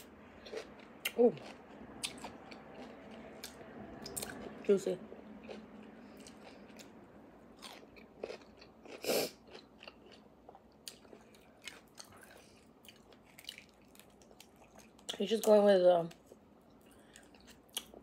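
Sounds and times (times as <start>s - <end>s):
chewing bone marrow: 7.6s - 15.2s.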